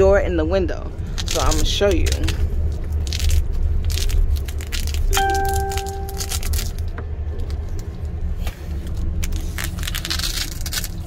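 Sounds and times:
train interior rumble: 0:00.0 - 0:11.0
velcro pulled apart: 0:01.2 - 0:05.2, 0:08.4 - 0:11.0
short ringing tone: 0:05.2 - 0:06.5.

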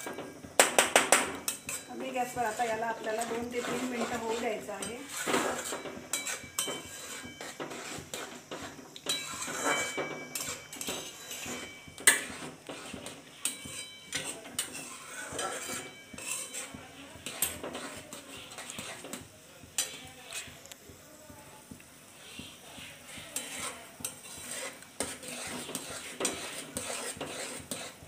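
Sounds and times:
spoon clinking on metal pan: 0:00.0 - 0:02.6, 0:03.2 - 0:20.6
spoon scraping metal pan: 0:00.0 - 0:20.7, 0:22.0 - 0:28.0.

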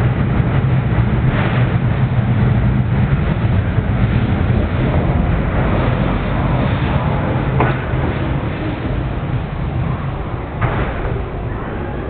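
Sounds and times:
wheels rumbling on rails: 0:00.0 - 0:12.0.

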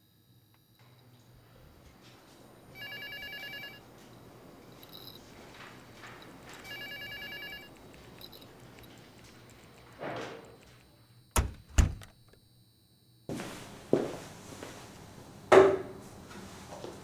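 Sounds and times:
faint office ambience: 0:00.6 - 0:12.0, 0:13.3 - 0:17.0
telephone warbling electronic ring: 0:02.8 - 0:03.8, 0:06.6 - 0:07.7.

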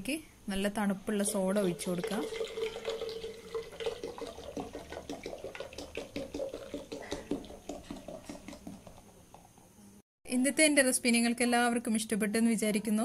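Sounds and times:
soda pouring and crackling: 0:01.2 - 0:09.2.

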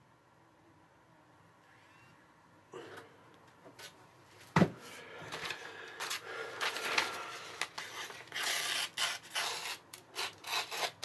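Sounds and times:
thump: 0:04.6 - 0:04.8
newspaper rustling and crinkling: 0:05.4 - 0:09.8.

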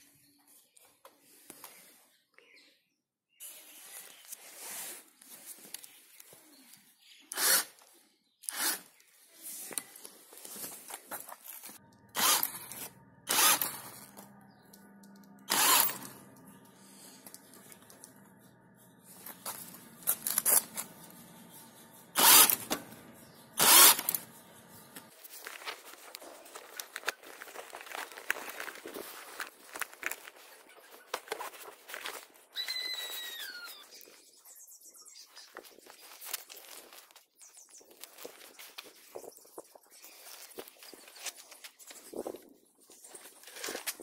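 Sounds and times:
electric motor humming: 0:11.8 - 0:25.1.

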